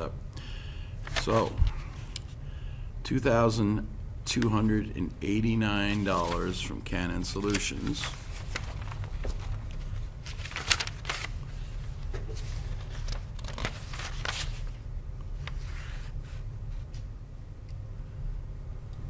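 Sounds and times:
steady low hum: 0.0 - 19.0
paper rustling: 1.0 - 2.1, 5.8 - 17.1.

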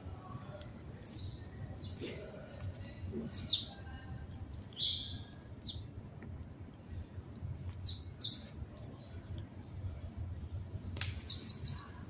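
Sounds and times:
sparrows chirping: 1.0 - 2.2, 2.8 - 4.0, 4.6 - 5.9, 7.8 - 9.4, 11.2 - 12.0.

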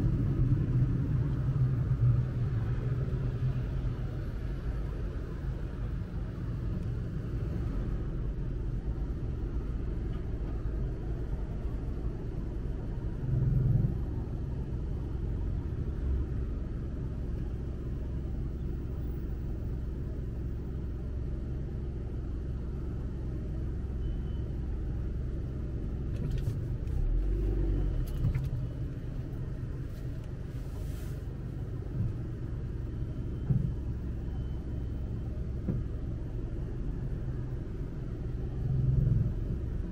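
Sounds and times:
car cabin rumble: 24.5 - 39.9.

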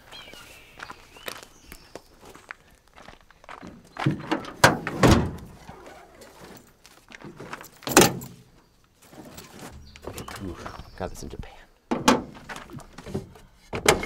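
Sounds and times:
door knocks and clunks: 4.0 - 5.6, 11.9 - 14.0.

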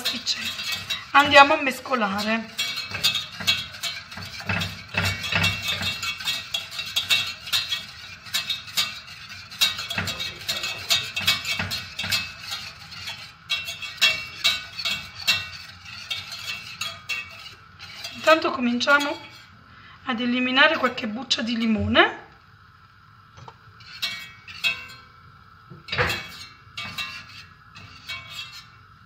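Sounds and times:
whisk clinking against metal pan: 0.0 - 19.6, 23.8 - 29.0.

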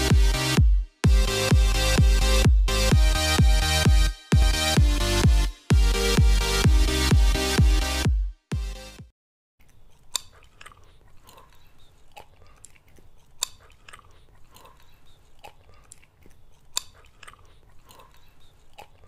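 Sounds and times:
wet mouth clicks chewing: 9.6 - 19.0.

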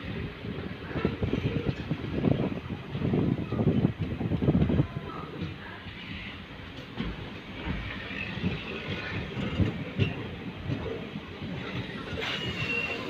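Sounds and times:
train wheels rumbling over rails: 0.0 - 13.0
faint high squeal: 12.0 - 13.0.

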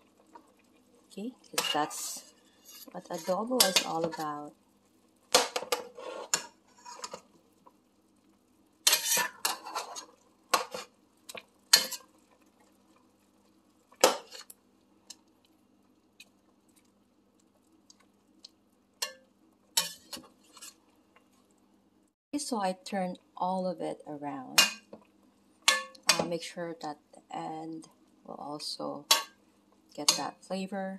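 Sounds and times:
faint steady hum: 0.0 - 30.9
metal utensils clanking in a pot: 1.6 - 4.3, 8.9 - 10.9, 11.7 - 12.1, 19.0 - 19.2, 19.8 - 20.8, 24.6 - 24.9, 25.7 - 26.3, 29.1 - 29.4, 30.0 - 30.4.

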